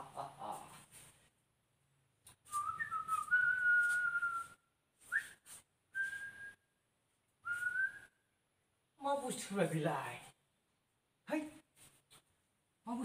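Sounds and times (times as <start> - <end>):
person whistling: 2.5 - 6.7, 7.4 - 8.2.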